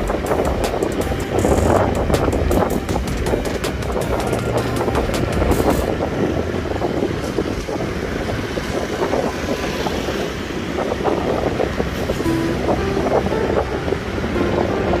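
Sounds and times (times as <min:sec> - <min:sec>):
city street traffic: 0:00.0 - 0:15.0
wind rushing over microphone: 0:00.0 - 0:15.0.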